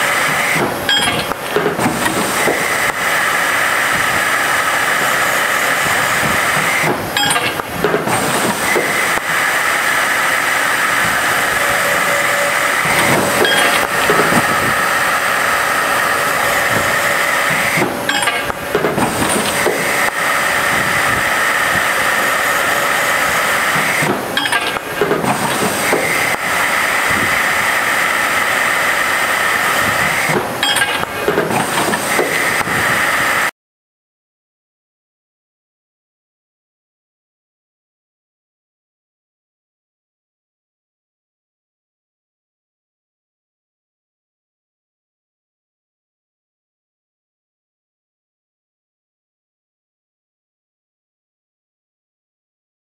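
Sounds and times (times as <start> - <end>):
machine whine and hiss: 0.0 - 33.5.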